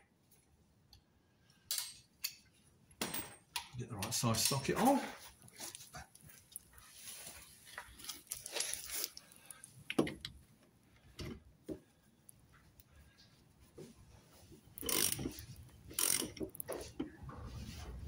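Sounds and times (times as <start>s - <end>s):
tool scraping: 14.8s - 18.0s.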